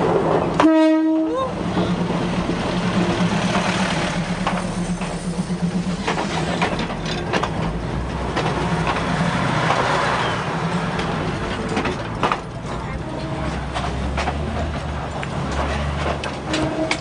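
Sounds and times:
diesel engine droning: 0.0s - 17.0s
wheels clicking and knocking: 2.4s - 17.0s.

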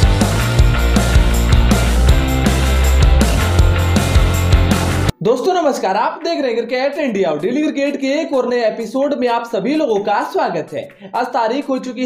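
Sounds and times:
upbeat intro music: 0.0s - 5.2s.

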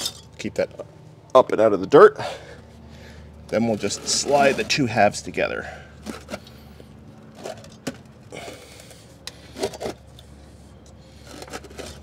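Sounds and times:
light knocks and scrapes: 3.5s - 5.0s.

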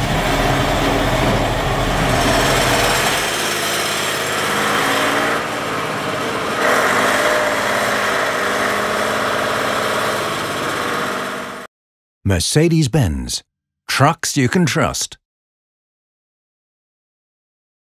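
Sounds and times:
truck diesel engine driving: 0.0s - 11.7s.

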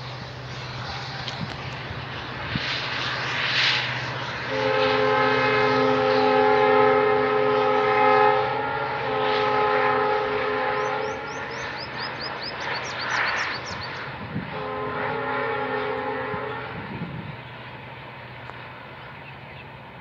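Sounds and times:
passing train hum: 0.0s - 20.0s
locomotive horn blasts: 4.4s - 12.1s, 14.3s - 17.2s.

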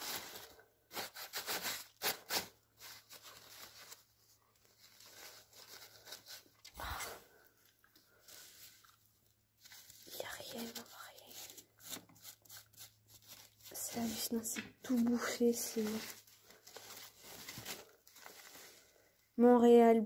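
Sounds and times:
newspaper crackling and tearing: 0.0s - 7.2s, 9.6s - 19.0s
paper rubbing: 9.6s - 16.2s.

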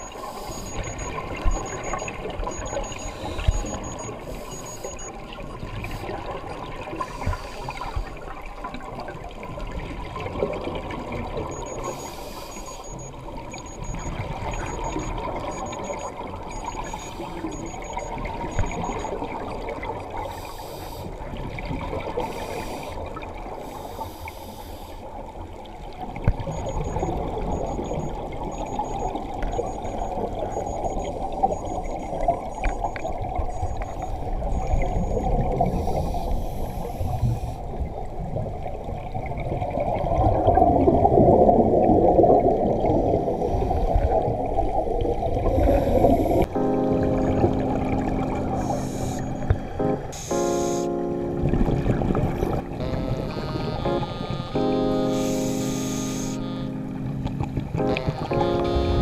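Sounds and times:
faint high electronic beeping: 0.0s - 5.2s, 11.4s - 19.3s, 26.5s - 37.6s, 46.2s - 51.5s, 52.1s - 59.0s
underwater exhaled bubbles: 25.1s - 46.5s, 51.4s - 55.0s.

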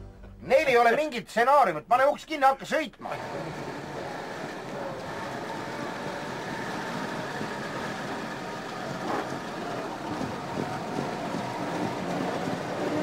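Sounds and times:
bus engine running: 3.1s - 13.0s
road noise: 3.2s - 13.0s.

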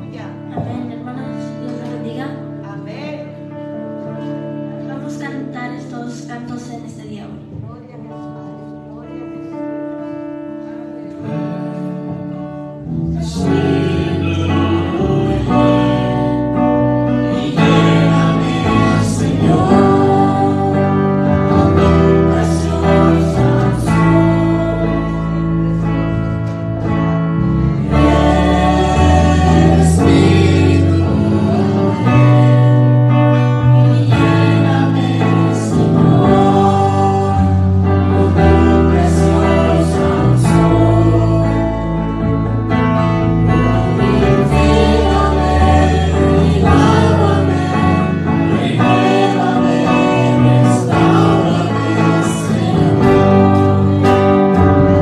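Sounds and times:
live instrumental accompaniment: 0.0s - 55.0s
man singing along: 11.3s - 25.9s, 27.8s - 42.5s, 43.4s - 55.0s.

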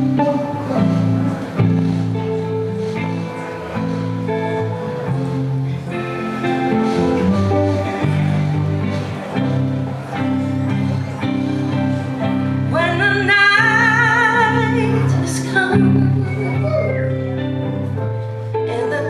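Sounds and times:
live band playing: 0.0s - 19.0s
woman singing with vibrato: 12.7s - 16.9s, 18.7s - 19.0s.

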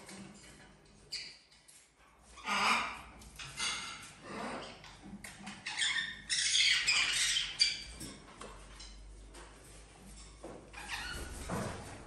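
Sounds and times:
parrot squawking: 5.7s - 7.8s.

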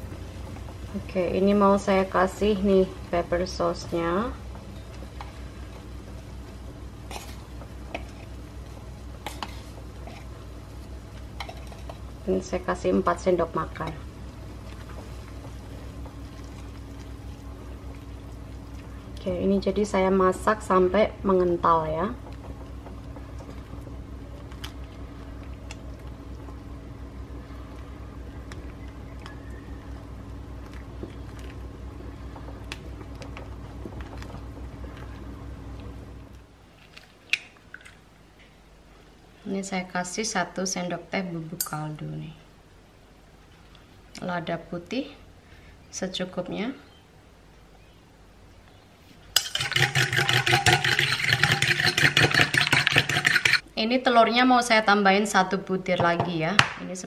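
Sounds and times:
low steady hum: 0.0s - 57.0s
spatula stirring: 7.0s - 12.1s, 49.4s - 53.6s
gravy simmering and popping: 13.6s - 19.3s, 22.1s - 38.0s.

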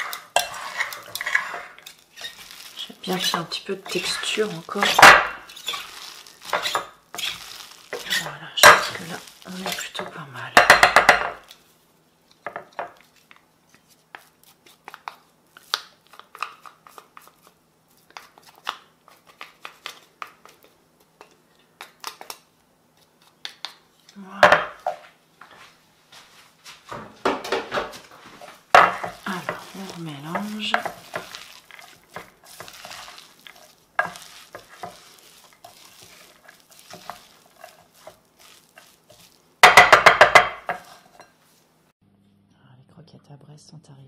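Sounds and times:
metal masher scraping ceramic dish: 0.0s - 2.5s.

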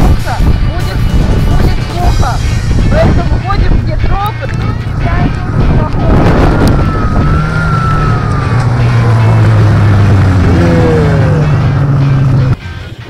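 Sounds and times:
snowmobile engine whining: 2.9s - 13.0s.

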